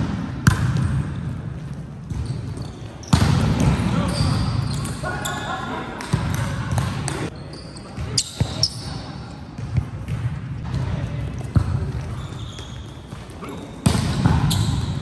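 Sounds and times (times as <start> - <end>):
sneakers squeaking on court: 0.4 - 15.0
players' voices: 3.4 - 9.6.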